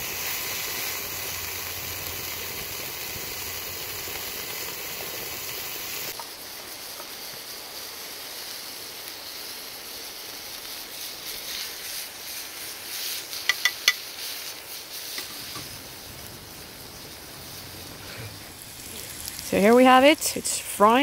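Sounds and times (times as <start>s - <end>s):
bacon sizzling in a pan: 0.0s - 21.0s
metal tongs clinking on pan: 13.5s - 14.0s.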